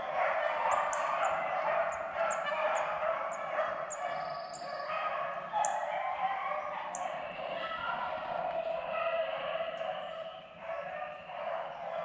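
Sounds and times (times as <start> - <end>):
dogs baying: 0.0 - 12.0
bird chirping: 0.7 - 2.9, 3.9 - 4.9.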